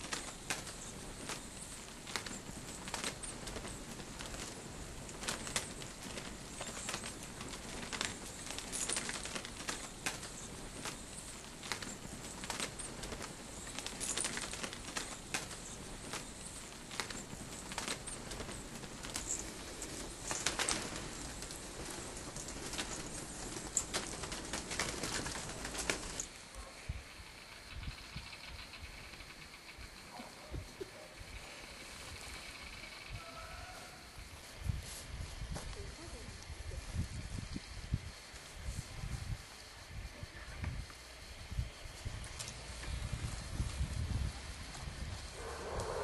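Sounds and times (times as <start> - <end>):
bat wings fluttering: 0.0 - 26.5, 40.8 - 46.0.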